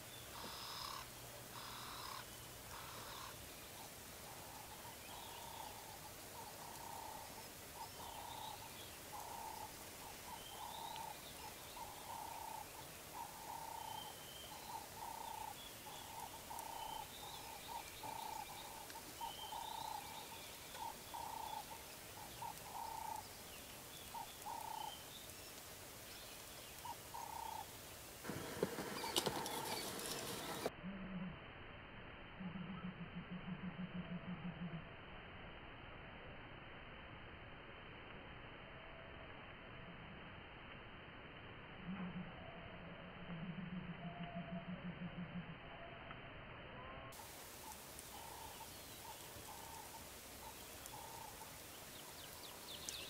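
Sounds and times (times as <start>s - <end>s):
faint bird chirps: 0.0s - 27.7s, 28.3s - 31.4s, 32.4s - 34.9s, 41.8s - 53.0s
steady hiss: 0.0s - 32.5s, 34.2s - 44.0s, 46.1s - 53.0s.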